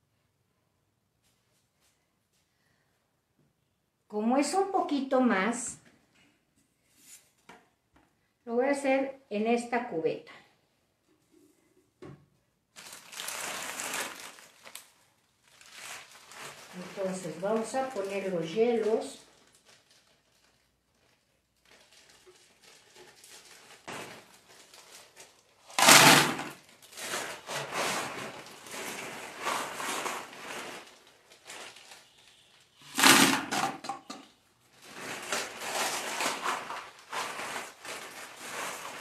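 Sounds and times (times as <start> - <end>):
ice cubes dumped into bucket: 21.8 - 32.1, 32.8 - 34.2, 34.8 - 39.0
ice cubes clattering: 25.6 - 31.7, 32.8 - 34.1, 34.8 - 39.0.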